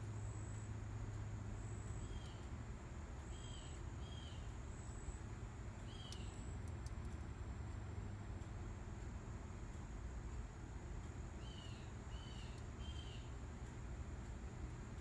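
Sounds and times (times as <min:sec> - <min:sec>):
steady low hum: 0:00.0 - 0:15.0
bird chirps: 0:05.8 - 0:06.4, 0:11.4 - 0:13.3.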